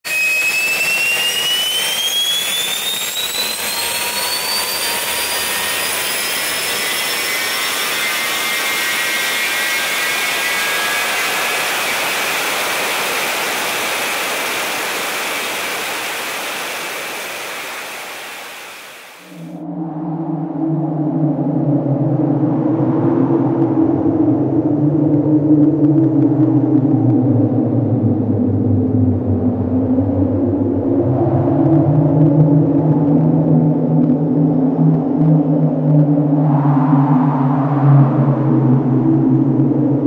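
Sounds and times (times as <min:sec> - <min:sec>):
drone propellers whining: 0:00.0 - 0:20.6.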